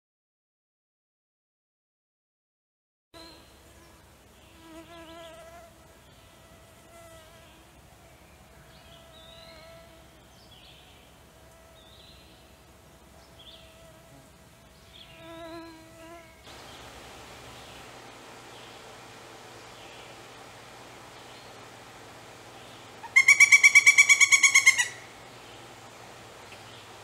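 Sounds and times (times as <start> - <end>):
steady outdoor hiss: 3.2 - 27.0
faint high bird calls: 7.3 - 12.5, 22.5 - 25.7.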